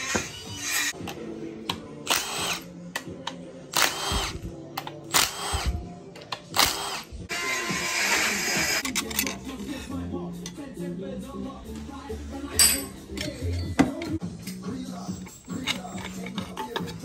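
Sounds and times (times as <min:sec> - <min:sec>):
background music: 0:00.0 - 0:17.0.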